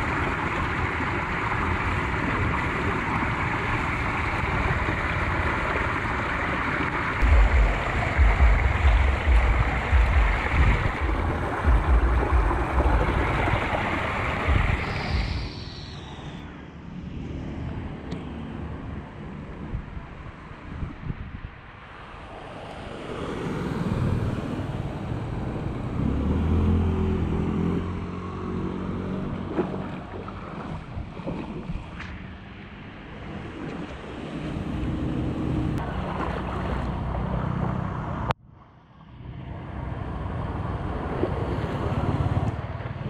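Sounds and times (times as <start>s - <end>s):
splashing floodwater: 0.0s - 15.7s, 23.0s - 38.3s
motorbike engine passing through water: 0.0s - 15.8s, 23.1s - 38.3s, 39.1s - 43.0s
wind rushing on microphone: 7.2s - 27.6s.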